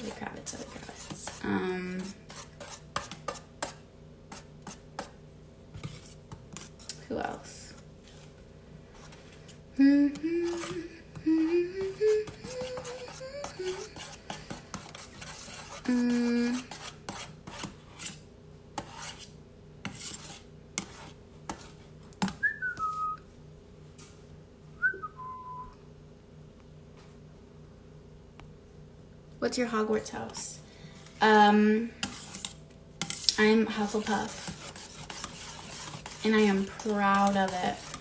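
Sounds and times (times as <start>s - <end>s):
whisk scraping metal bowl: 0.0s - 5.2s, 5.8s - 22.3s, 30.1s - 38.0s
person humming: 9.8s - 14.2s, 15.9s - 16.7s.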